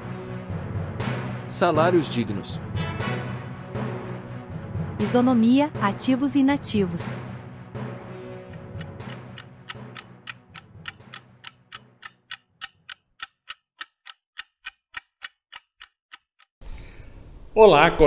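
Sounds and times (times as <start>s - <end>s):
clock ticking: 8.5s - 16.6s.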